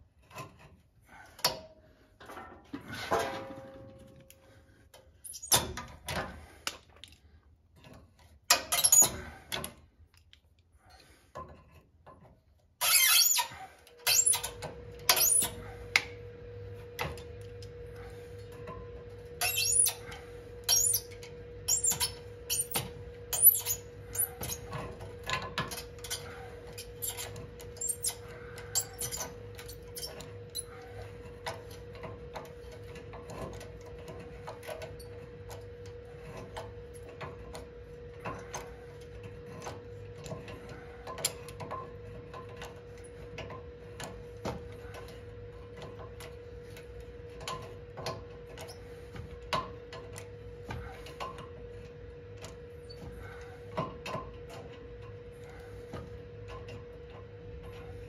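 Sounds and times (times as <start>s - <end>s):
metallic clicks and creaks of bolt: 7.8s - 10.6s.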